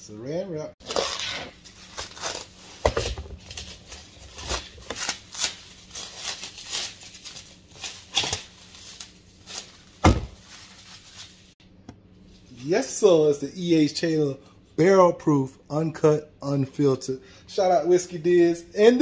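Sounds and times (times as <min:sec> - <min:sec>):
plastic wrap crinkling and tearing: 0:00.8 - 0:11.6.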